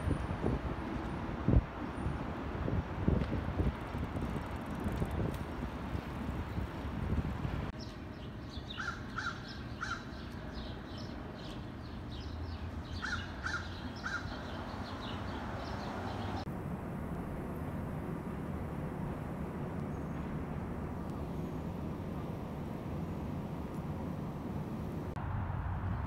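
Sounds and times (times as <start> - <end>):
low city hum: 0.0 - 26.0
low street rumble: 0.0 - 26.0
birds chirping: 7.8 - 16.5.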